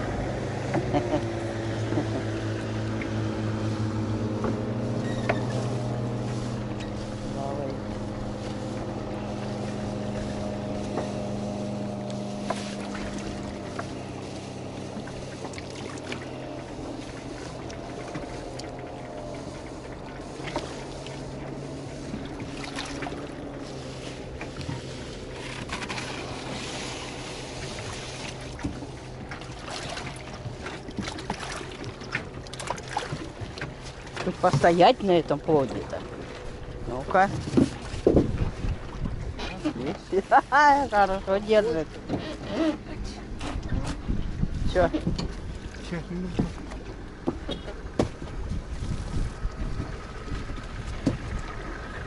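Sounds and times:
outboard motor running: 0.0s - 52.0s
water splashes: 0.0s - 52.0s
net and fish knocking on hull: 37.2s - 39.4s, 46.3s - 51.6s.

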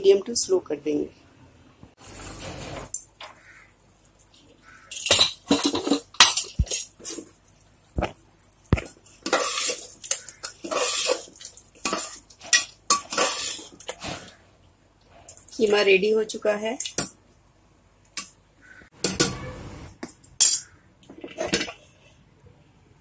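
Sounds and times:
metal spoon scraping pot: 9.2s - 14.3s.

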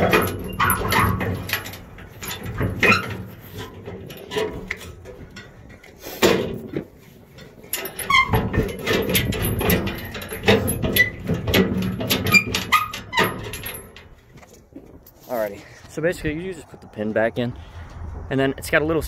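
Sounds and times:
hinge squeaking: 0.0s - 5.0s, 7.5s - 14.2s
metal door clanking: 0.0s - 5.6s, 7.8s - 14.2s.

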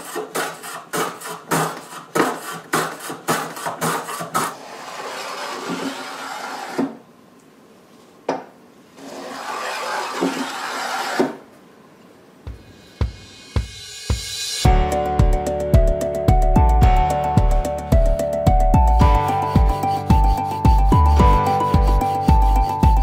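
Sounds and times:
block plane cutting wood: 0.0s - 7.0s, 9.0s - 11.4s, 19.0s - 23.0s.

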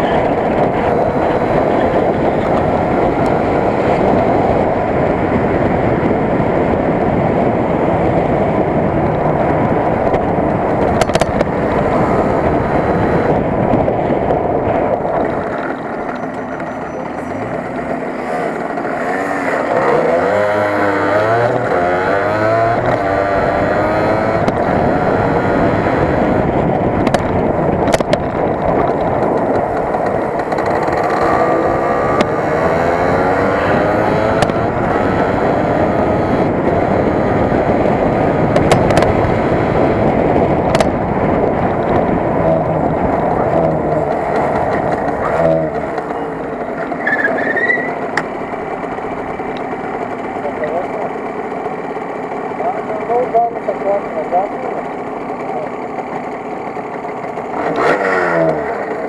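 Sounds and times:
two-stroke motorcycle engine revving: 0.0s - 59.0s
wind and road noise: 0.0s - 59.0s.

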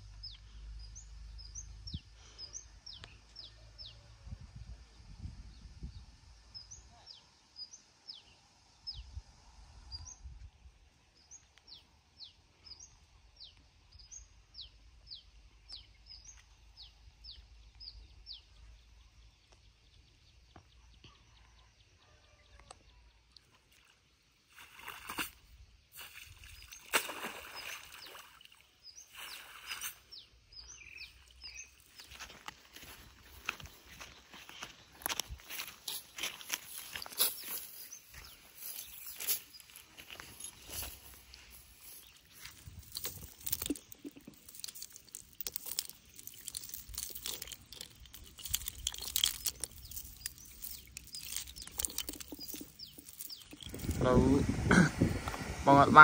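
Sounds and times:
wet net splashing and dripping: 23.7s - 30.0s, 42.9s - 53.9s
footsteps on dry ground: 29.2s - 54.4s
shells chain and netting rattling: 35.4s - 54.1s.

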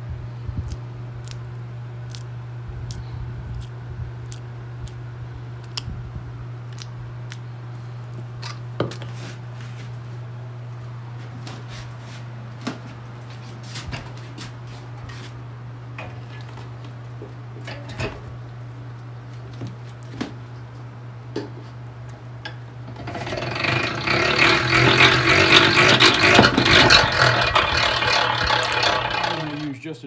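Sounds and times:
steady low hum: 0.0s - 30.0s
fork scraping wax cappings: 23.0s - 29.7s.

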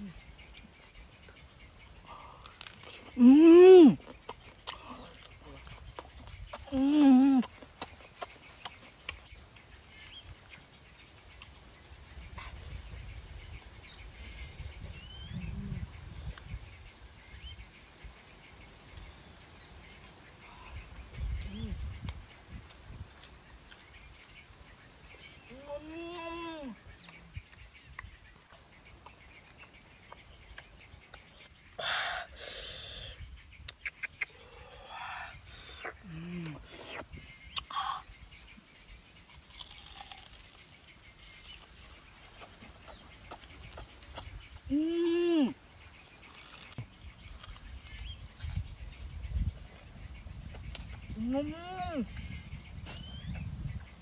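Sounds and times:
birds chirping: 0.0s - 54.0s
person chewing: 2.3s - 3.2s, 22.1s - 24.3s, 39.2s - 40.6s, 41.2s - 44.3s, 46.2s - 48.6s.

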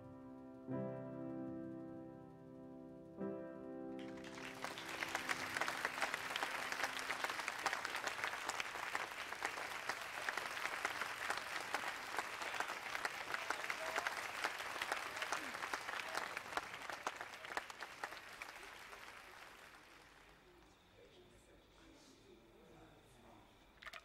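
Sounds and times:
piano chord ringing: 0.0s - 5.3s
audience applause: 4.0s - 20.4s.

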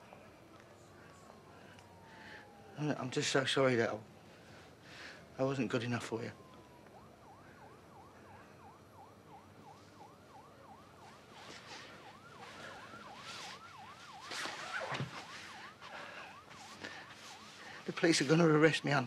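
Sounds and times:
distant yelping siren: 0.0s - 19.0s
soft hissing noises: 11.0s - 18.4s.

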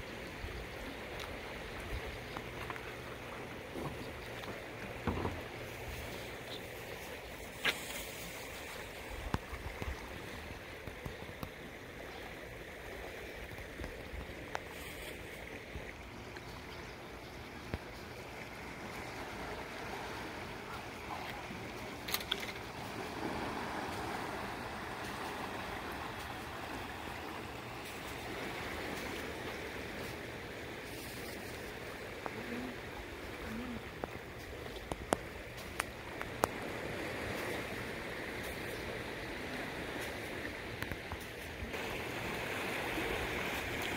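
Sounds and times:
water rushing below dam: 0.9s - 43.9s
small clicks and knocks: 22.0s - 22.7s.

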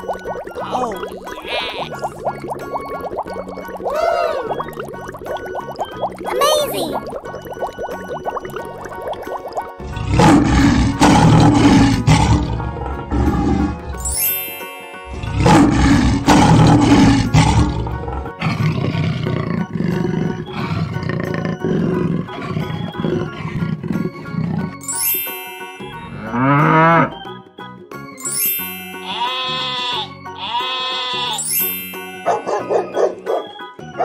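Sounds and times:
background music: 0.0s - 34.0s
big cat roaring: 9.8s - 13.8s, 15.2s - 24.8s.

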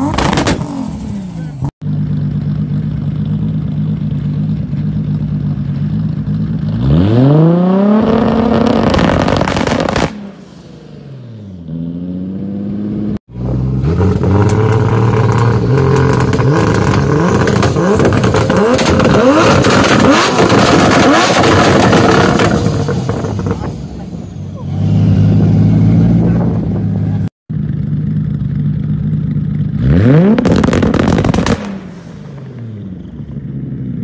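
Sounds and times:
exhaust pops and bangs: 0.0s - 0.7s, 8.1s - 10.2s, 14.0s - 23.8s, 30.3s - 32.0s
car engine revving: 0.0s - 34.0s
engine bouncing on rev limiter: 13.3s - 34.0s.

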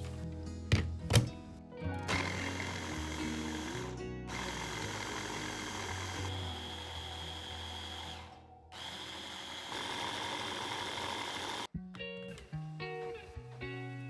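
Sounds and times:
hand blender motor whining: 2.1s - 11.7s.

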